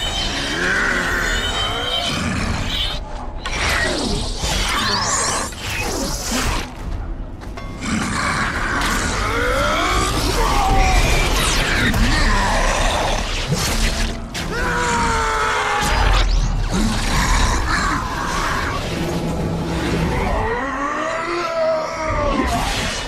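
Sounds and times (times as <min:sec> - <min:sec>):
dramatic music: 0:00.0 - 0:23.0.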